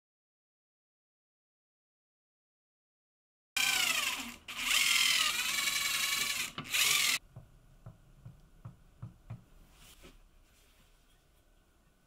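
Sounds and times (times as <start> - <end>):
cordless drill whine: 3.6 - 7.2.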